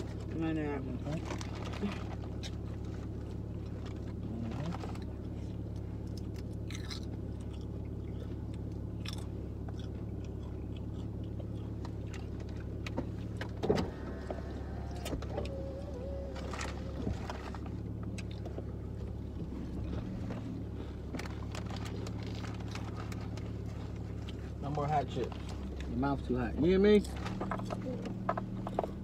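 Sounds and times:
car engine idling: 0:00.0 - 0:29.0
chips crunching: 0:06.1 - 0:12.8.

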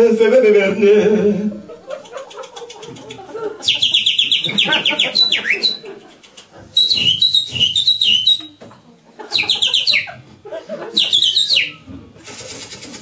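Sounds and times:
birdlike whistling chirps: 0:03.6 - 0:08.6, 0:09.3 - 0:10.2, 0:10.9 - 0:11.9.

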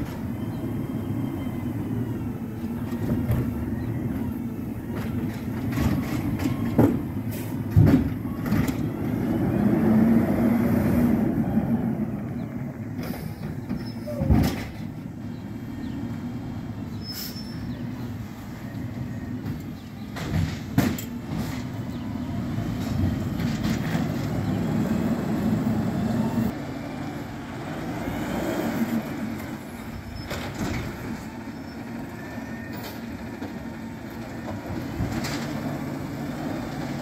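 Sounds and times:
garbage truck engine running: 0:00.0 - 0:28.0
metal clanks and bangs: 0:20.1 - 0:21.8.

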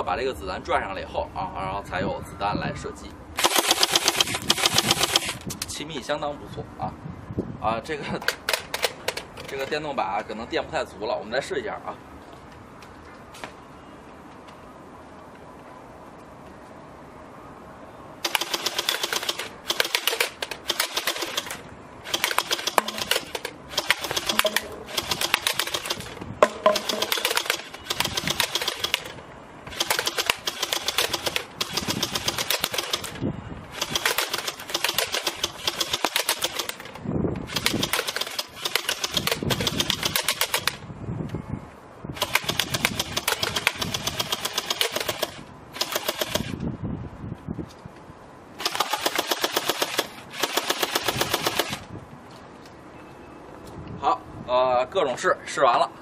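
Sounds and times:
toy gun rapid mechanical clacking: 0:03.4 - 0:05.7, 0:08.2 - 0:09.8, 0:18.2 - 0:40.8, 0:42.2 - 0:46.6, 0:48.6 - 0:51.8.

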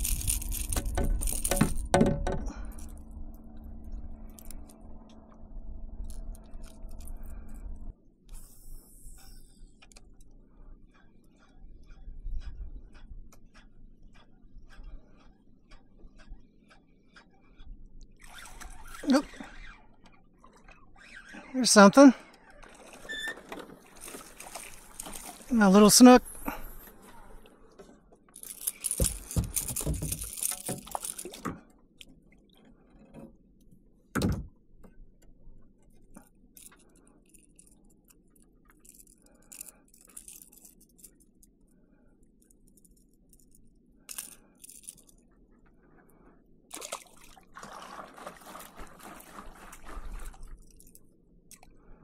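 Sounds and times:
fishing tackle clicks and rattles: 0:00.0 - 0:03.0, 0:04.3 - 0:04.8, 0:06.1 - 0:07.6, 0:22.6 - 0:25.8, 0:28.3 - 0:32.1, 0:36.1 - 0:41.7, 0:42.3 - 0:45.3, 0:50.5 - 0:51.7
fish flapping and splashing: 0:23.8 - 0:25.6, 0:46.7 - 0:51.0.

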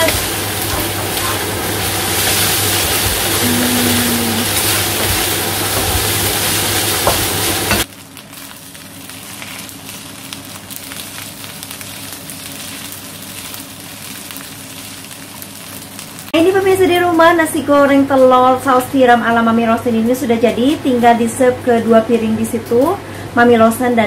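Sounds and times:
fried rice sizzling in a pan: 0:00.0 - 0:18.8.

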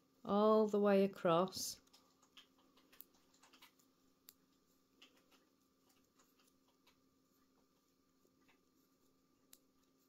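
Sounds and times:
knitting needles clicking: 0:01.8 - 0:07.1, 0:09.5 - 0:10.0.

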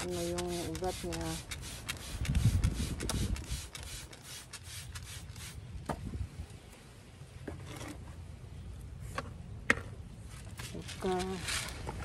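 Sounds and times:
hands rustling potting soil: 0:00.0 - 0:05.6, 0:10.2 - 0:12.0.

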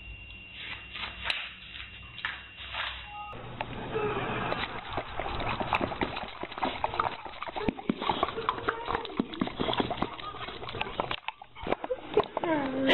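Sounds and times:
dog making rapid clicks: 0:04.5 - 0:12.4.

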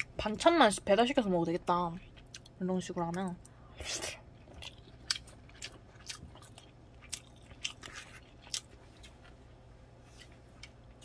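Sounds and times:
person chewing food: 0:02.0 - 0:02.6, 0:03.4 - 0:11.0.

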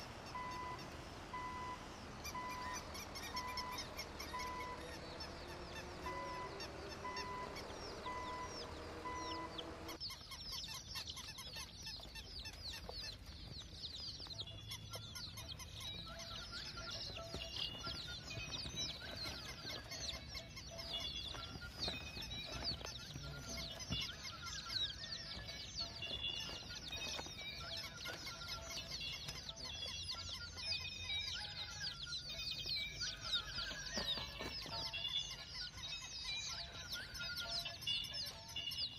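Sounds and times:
pulsing tone: 0:00.0 - 0:10.0
faint steady tones: 0:00.0 - 0:10.8, 0:12.0 - 0:38.9
chickens calling: 0:00.0 - 0:38.9.

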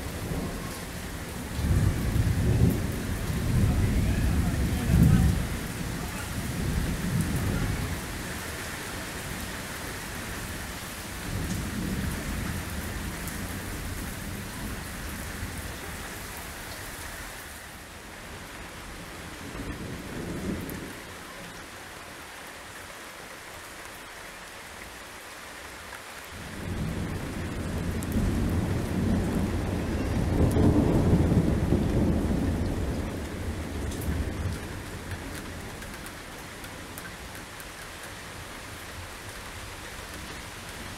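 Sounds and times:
thunder rumbling: 0:00.0 - 0:16.2, 0:26.4 - 0:37.3
heavy rain hissing: 0:00.0 - 0:40.9.

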